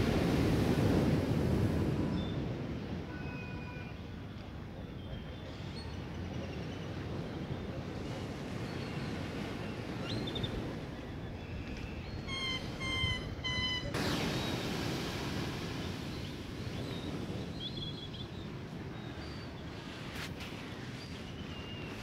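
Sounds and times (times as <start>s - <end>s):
waves washing onto beach: 0.0s - 3.8s, 13.9s - 22.0s
wave breaking: 13.9s - 16.7s.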